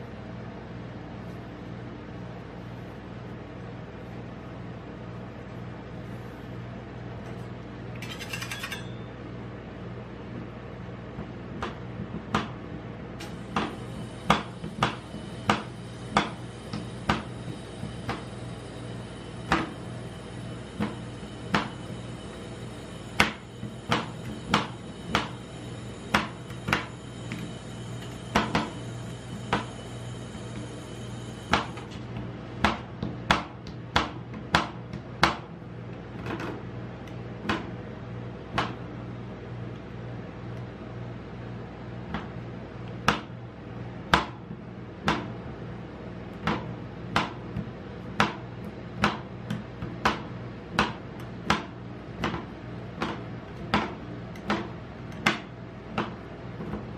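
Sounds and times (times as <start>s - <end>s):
steady low hum: 0.0s - 56.9s
metal spatulas clacking on steel plate: 8.0s - 9.0s.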